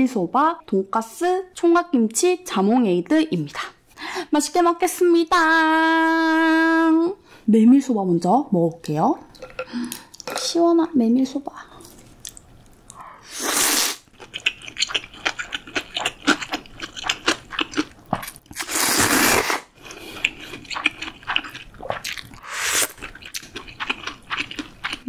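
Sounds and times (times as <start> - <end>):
soft wet chewing clicks: 11.8 - 13.0, 14.2 - 18.3, 23.0 - 25.0
slurping noodles: 13.2 - 14.1, 18.6 - 23.2.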